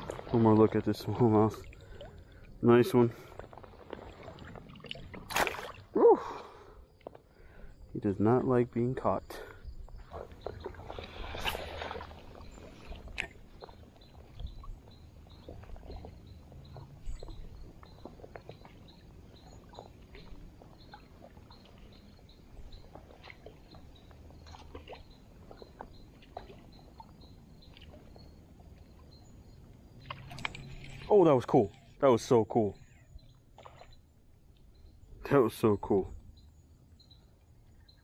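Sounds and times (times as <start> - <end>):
water splash: 3.7 - 6.0, 10.1 - 14.6.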